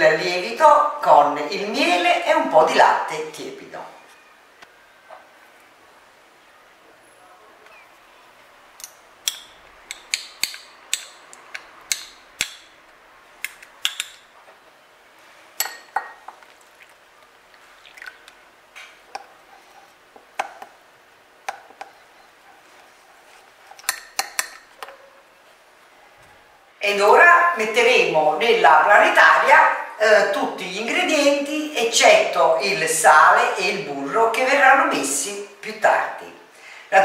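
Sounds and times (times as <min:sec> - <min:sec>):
teaspoon clinking against glass bowl: 0:15.6 - 0:16.2.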